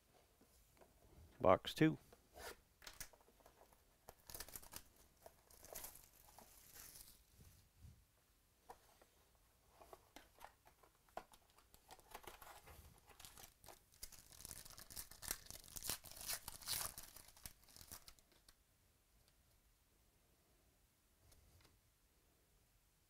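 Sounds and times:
foil wrapper tearing and crinkling: 0:04.1 - 0:07.2, 0:13.2 - 0:18.2.

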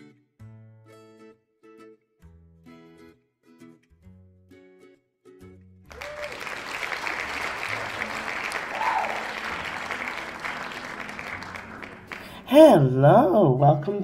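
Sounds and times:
applause and cheering: 0:05.9 - 0:12.7.

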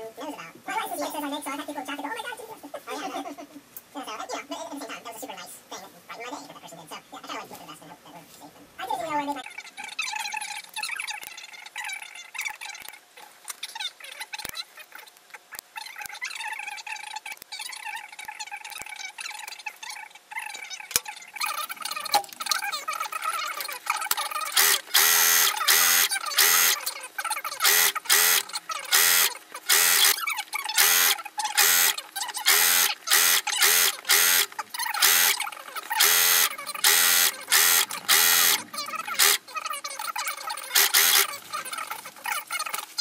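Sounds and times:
sewing machine bursts: 0:24.6 - 0:26.8, 0:27.6 - 0:30.2, 0:30.8 - 0:35.4, 0:36.0 - 0:38.6, 0:39.2 - 0:39.4, 0:40.7 - 0:41.3.

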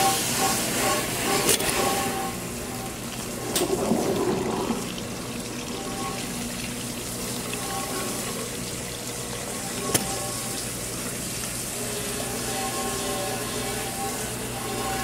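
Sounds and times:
machine hum: 0:00.0 - 0:15.0
water rushing down a drain: 0:03.0 - 0:11.6.

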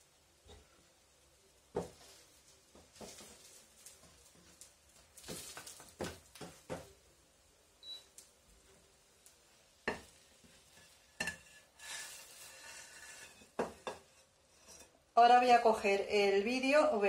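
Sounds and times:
wooden spatula knocking on frying pan: 0:01.7 - 0:02.0, 0:05.3 - 0:07.0, 0:09.8 - 0:10.6, 0:13.6 - 0:14.1
spatula scraping pan: 0:01.8 - 0:04.6, 0:09.8 - 0:15.0.

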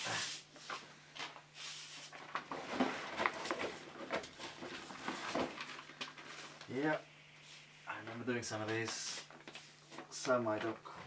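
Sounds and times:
paper rustling and sliding: 0:00.0 - 0:07.8, 0:08.5 - 0:10.4.

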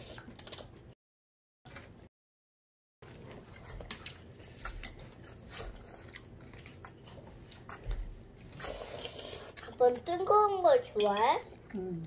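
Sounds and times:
child slurping and chewing noodles: 0:03.0 - 0:10.3.

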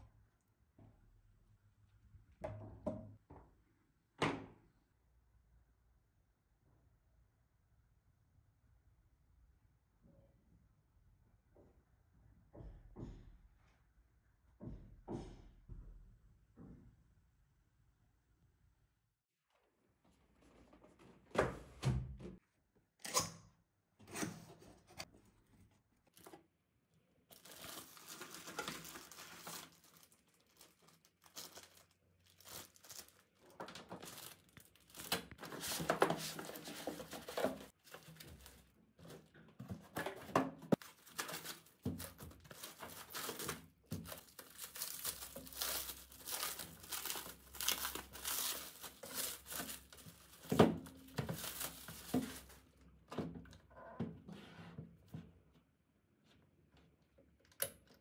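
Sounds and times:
plastic film crinkling and tearing: 0:27.3 - 0:38.7, 0:40.8 - 0:52.6.

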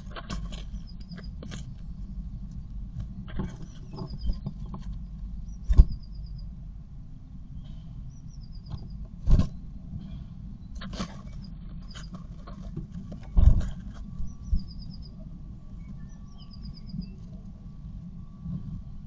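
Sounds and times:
steady low rumble: 0:00.0 - 0:19.0
high bird trill: 0:05.4 - 0:06.5, 0:07.6 - 0:09.0, 0:14.2 - 0:17.2.

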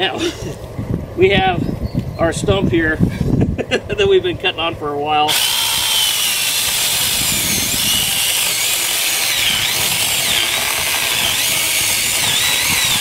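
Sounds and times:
electric chainsaw cutting wood: 0:05.3 - 0:13.0.

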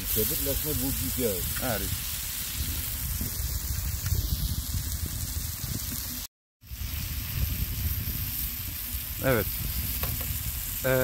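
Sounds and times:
food sizzling as it fries: 0:00.0 - 0:11.0.

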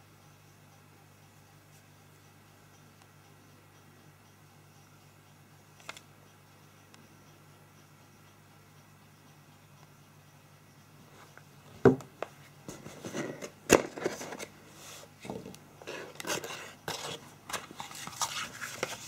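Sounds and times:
knock on box: 0:11.8 - 0:12.1.

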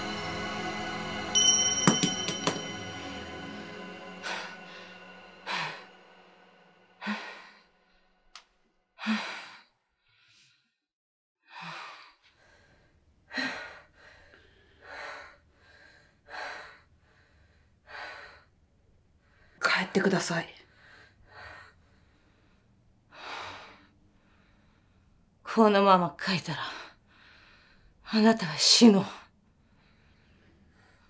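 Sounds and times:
woman breathing deeply: 0:03.9 - 0:07.7, 0:11.5 - 0:18.5, 0:26.8 - 0:28.0.

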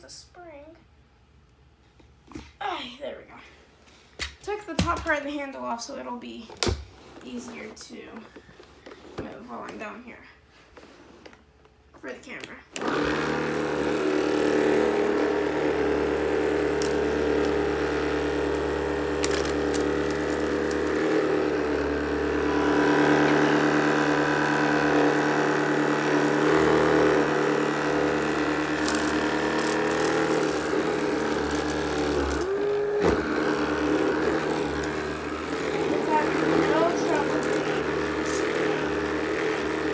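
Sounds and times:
cordless sweeper motor humming: 0:12.8 - 0:39.9.

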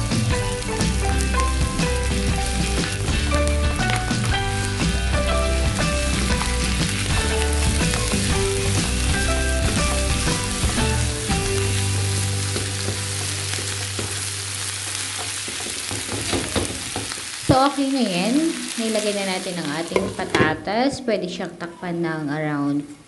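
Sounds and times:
food sizzling in a frying pan: 0:00.0 - 0:20.7
spatula stirring in a pan: 0:05.8 - 0:17.5.

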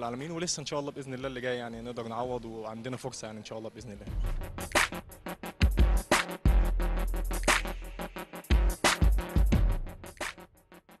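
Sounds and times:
electronic music with heavy bass: 0:04.1 - 0:11.0.

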